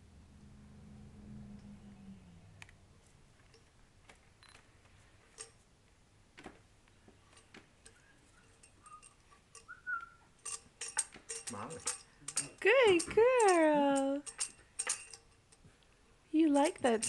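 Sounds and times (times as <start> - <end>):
toy tambourine taps and jingles: 10.4 - 15.4.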